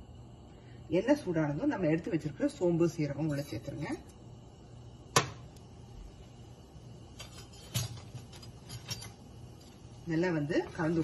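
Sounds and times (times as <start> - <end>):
low steady hum: 0.0 - 11.0
sharp knock at stove: 5.1 - 5.4.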